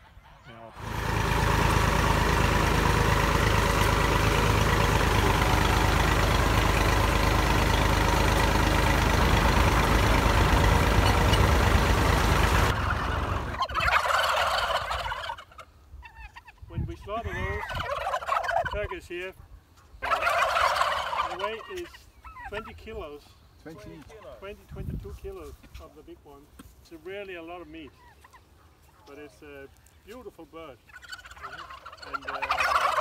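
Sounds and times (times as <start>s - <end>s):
turkeys gobbling: 0.0s - 23.2s, 27.7s - 33.0s
tractor engine running: 0.8s - 15.3s.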